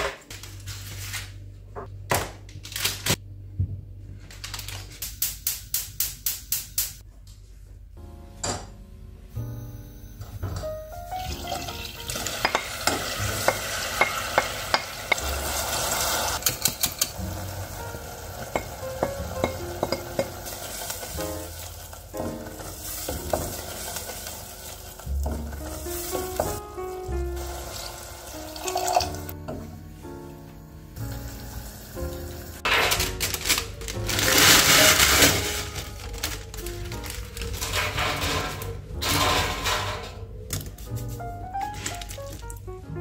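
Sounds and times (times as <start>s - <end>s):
vegetables sizzling in a pan: 11.3s - 16.5s, 17.2s - 26.6s, 27.3s - 29.2s, 31.0s - 33.1s.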